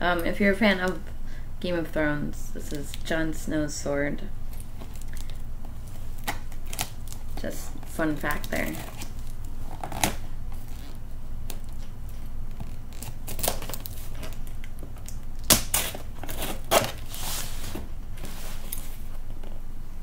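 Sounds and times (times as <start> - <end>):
blade slicing packing tape: 12.6 - 14.4, 15.4 - 17.8.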